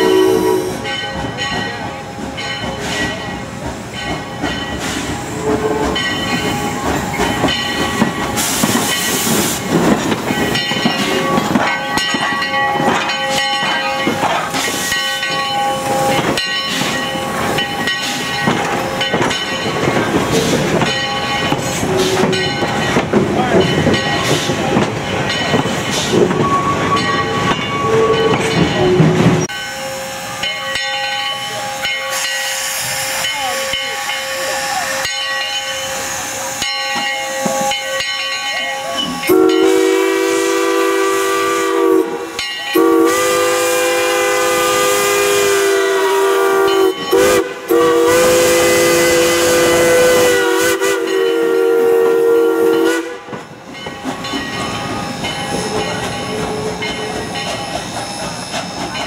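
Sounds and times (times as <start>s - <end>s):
chime steam whistle blasts: 0.0s - 1.0s, 38.8s - 53.3s
steam hissing: 0.0s - 1.1s, 2.4s - 12.5s, 13.2s - 23.0s, 29.4s - 59.0s
steam train running: 0.0s - 59.0s.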